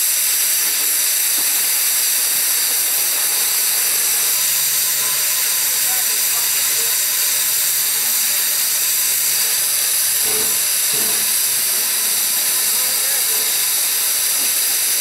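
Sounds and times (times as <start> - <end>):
steam hissing: 0.0 - 15.0.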